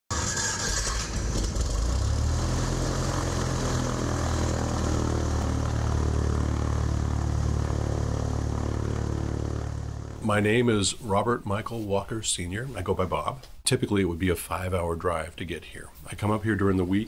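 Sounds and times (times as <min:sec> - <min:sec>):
light aircraft engine droning: 0:02.5 - 0:10.8.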